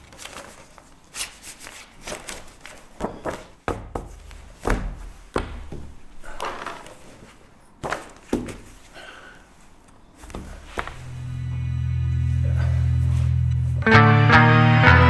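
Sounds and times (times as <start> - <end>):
paper folders rustling: 0.0 - 11.2.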